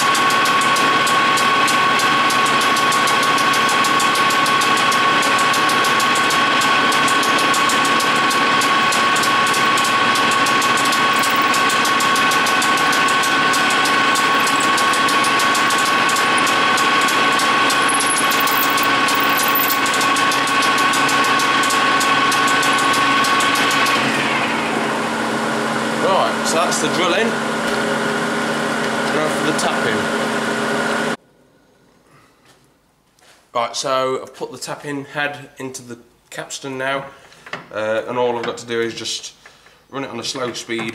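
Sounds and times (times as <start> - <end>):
lathe machine whine: 0.0 - 31.2.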